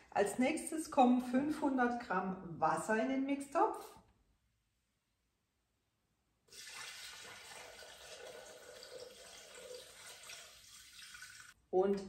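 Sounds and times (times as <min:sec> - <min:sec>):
water pouring into metal bowl: 0:06.5 - 0:11.6.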